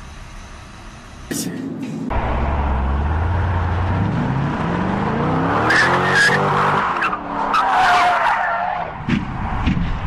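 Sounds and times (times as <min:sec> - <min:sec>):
car engine revving: 0:02.1 - 0:07.4.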